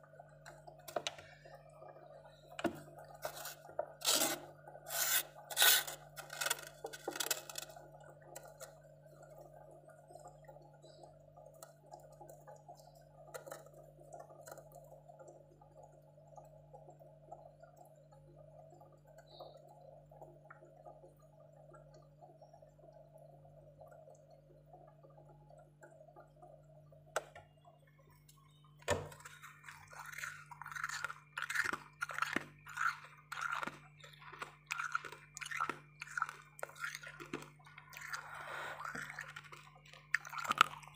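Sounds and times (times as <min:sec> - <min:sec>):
faint steady hum: 0:00.0 - 0:40.9
crunching of frost being chewed: 0:03.0 - 0:08.8, 0:29.2 - 0:40.9
spoon scraping frost: 0:03.2 - 0:07.7.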